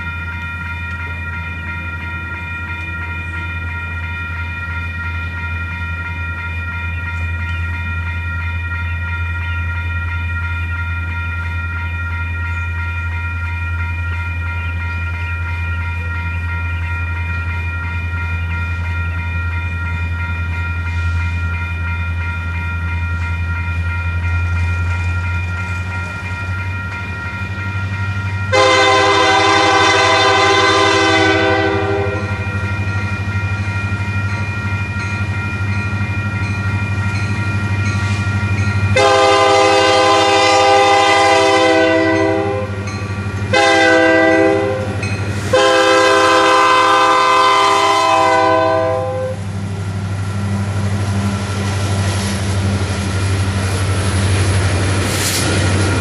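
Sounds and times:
diesel locomotive engine droning: 0.0 - 56.0
train air horn: 28.5 - 32.3, 39.0 - 42.7, 43.5 - 44.9, 45.5 - 49.4.

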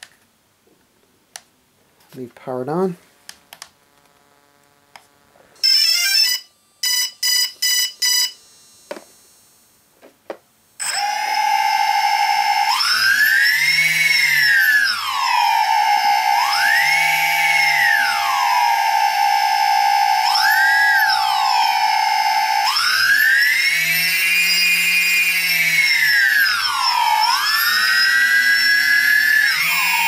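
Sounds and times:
drone motors whining: 3.8 - 9.7, 10.8 - 30.0
drone start-up beeps: 5.6 - 8.9, 15.1 - 25.6.

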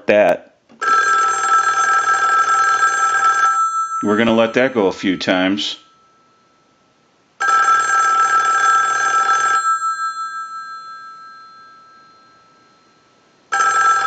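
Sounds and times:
telephone bell ringing: 0.8 - 4.6, 7.4 - 14.0.

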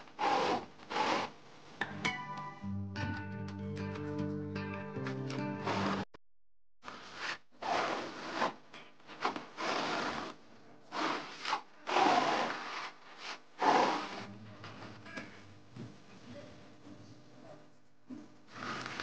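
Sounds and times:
hand tool scraping a wall: 0.0 - 1.4, 5.6 - 6.1, 6.9 - 14.3, 18.5 - 19.0.

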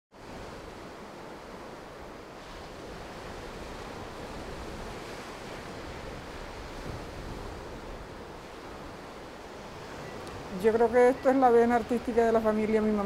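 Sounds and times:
sea surf washing in: 0.1 - 13.0.

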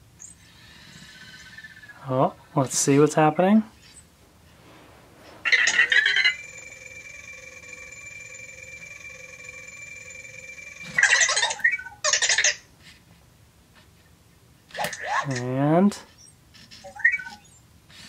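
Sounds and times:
robot electronic sounds: 5.3 - 12.0.

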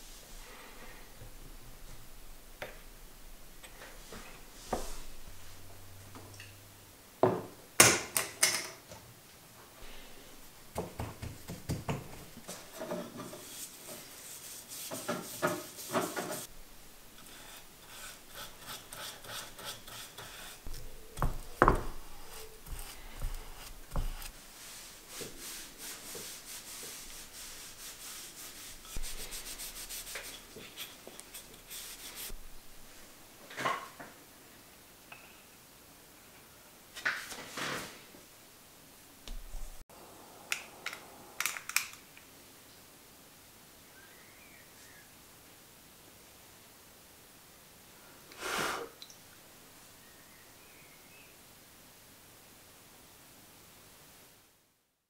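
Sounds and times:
paintbrush scrubbing wood: 12.5 - 16.5, 17.1 - 32.4.

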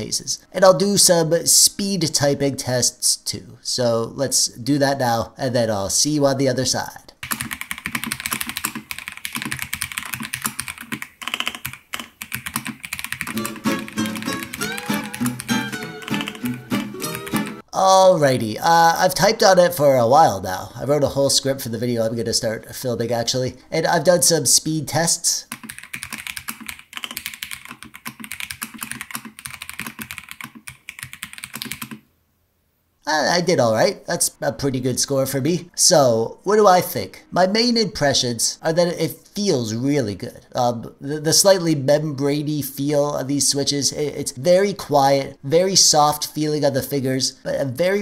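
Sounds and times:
mechanical keyboard typing: 7.2 - 17.6, 25.5 - 32.0.

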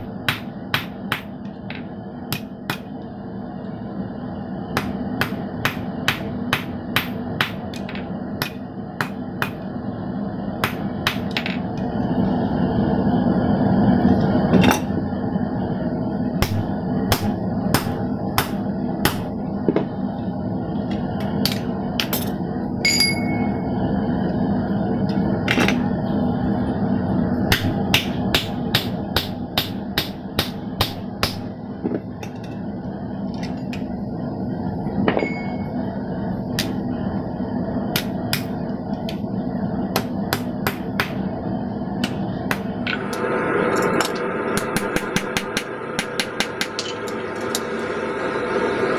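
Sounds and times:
steady low hum: 0.0 - 48.9
hammer striking steel on anvil: 4.8 - 9.6, 22.9 - 23.6, 27.5 - 31.5.

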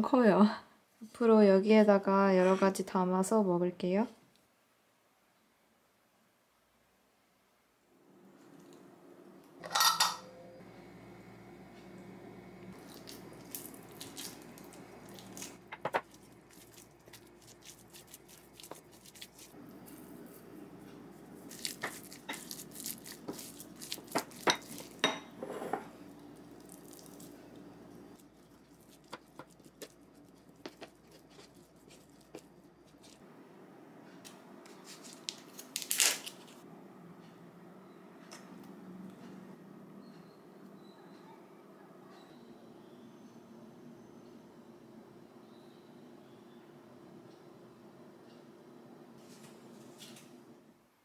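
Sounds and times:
crackling squish of tofu tub: 12.8 - 19.6, 21.4 - 25.0, 26.5 - 27.4
wooden spoon stirring in glass bowl: 12.8 - 20.4, 21.4 - 25.9, 28.2 - 33.2.

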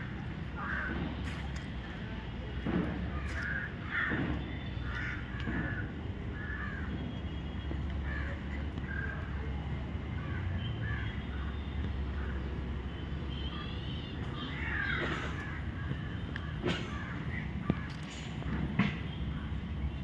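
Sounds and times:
crows cawing: 0.6 - 1.0, 3.2 - 4.2, 4.8 - 6.9, 14.5 - 18.0.

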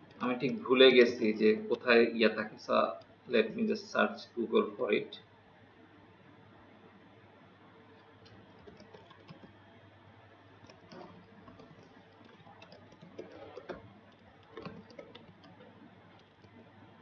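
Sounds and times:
computer keyboard typing: 8.0 - 9.6, 10.6 - 17.0.

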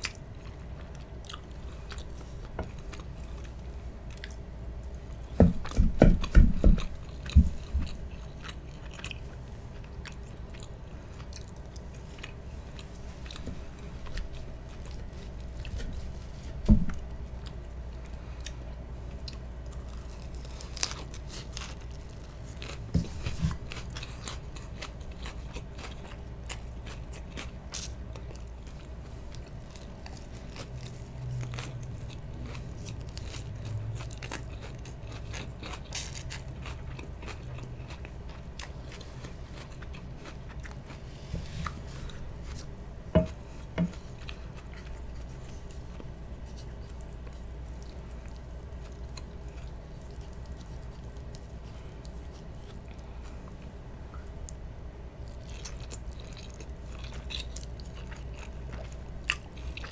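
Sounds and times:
chewing and biting food: 0.0 - 59.9
crisp lettuce crunches: 19.6 - 26.0.

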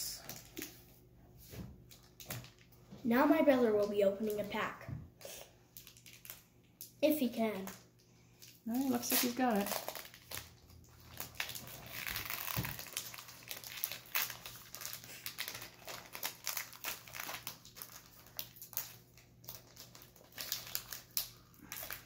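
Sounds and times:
foil wrapper crinkling: 1.9 - 2.8, 5.7 - 6.9, 8.4 - 22.0.

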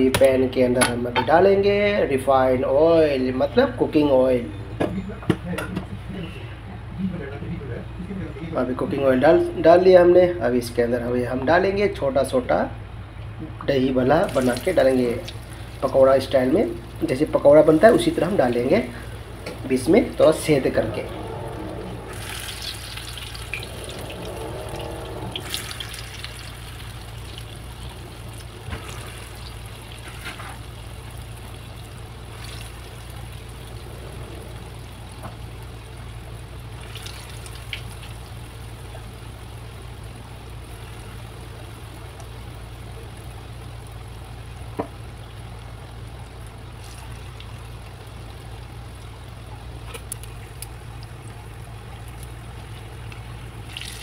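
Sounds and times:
food deep-frying in oil: 13.7 - 54.0.

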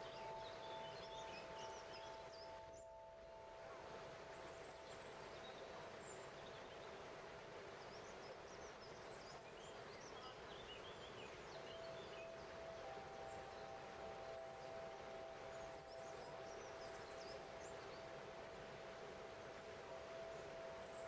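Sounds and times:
crystal harp held tones: 0.0 - 5.5, 11.6 - 21.0
small birds chirping: 0.0 - 7.0, 7.8 - 18.3.

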